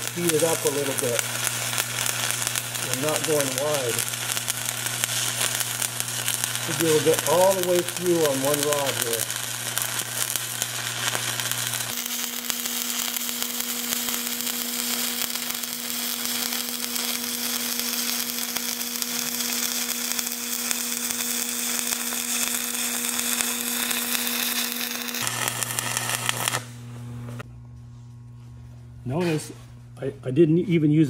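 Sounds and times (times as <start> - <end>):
welding arc crackling: 0.0 - 27.4.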